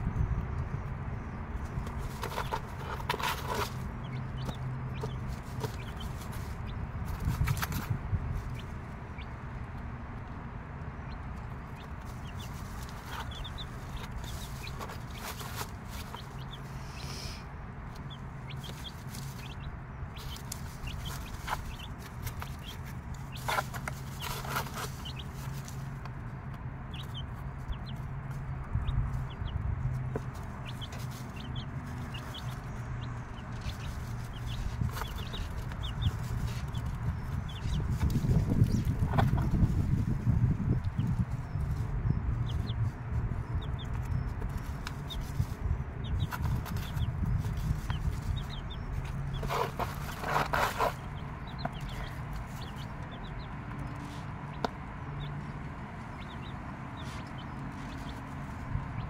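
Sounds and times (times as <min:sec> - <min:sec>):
chicks peeping: 0:00.0 - 0:59.0
rustles in wood shavings: 0:46.3 - 0:52.8.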